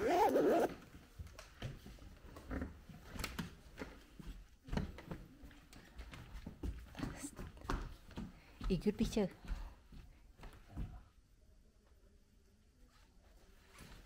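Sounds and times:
soft footsteps on wooden floor: 0.9 - 11.1.

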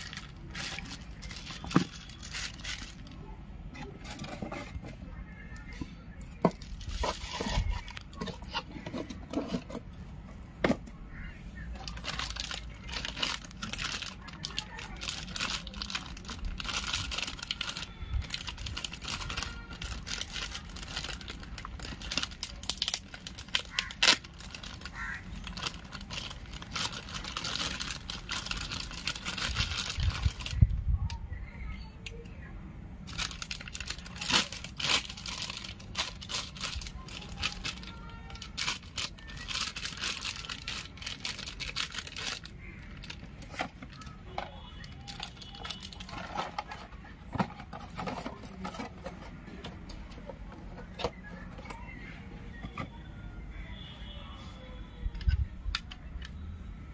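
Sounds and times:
plastic bag crinkling: 0.0 - 3.3, 11.7 - 30.7, 33.1 - 49.1.

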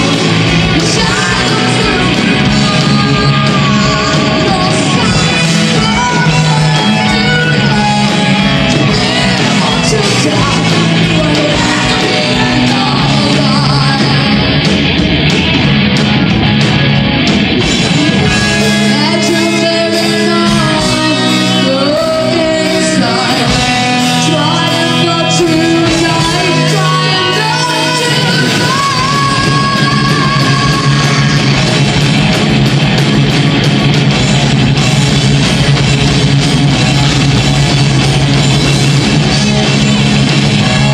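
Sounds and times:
person singing: 0.0 - 14.6, 18.3 - 31.9
bass guitar: 0.0 - 40.9
distorted electric guitars: 0.0 - 40.9
drum kit: 0.0 - 40.9
melodic guitar lines: 0.0 - 40.9.

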